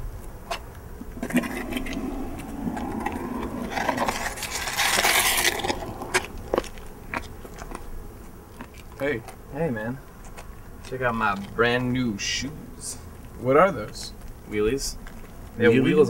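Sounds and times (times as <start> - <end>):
footsteps on pavement: 0.0 - 9.4
rushing scrape: 1.1 - 6.9.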